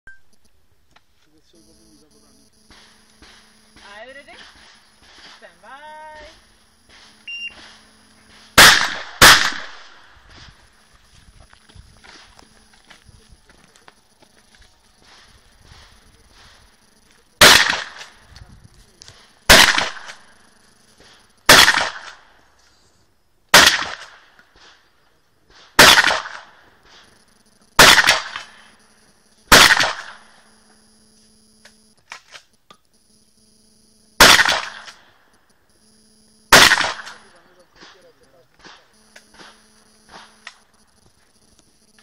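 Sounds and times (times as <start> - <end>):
shotgun blasts with echo: 6.9 - 10.5, 17.4 - 18.2, 19.5 - 20.3, 21.0 - 22.3, 23.5 - 24.8, 25.5 - 26.6, 27.8 - 28.6, 29.5 - 30.3, 34.2 - 35.0, 36.5 - 38.0.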